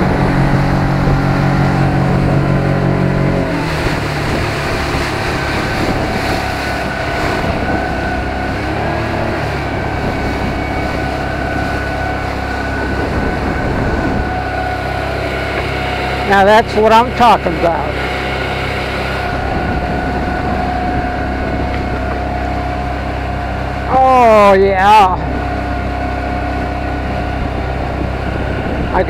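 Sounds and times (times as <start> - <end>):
outboard motor running hard: 0.0 - 29.0
water rushing and spray: 0.0 - 29.0.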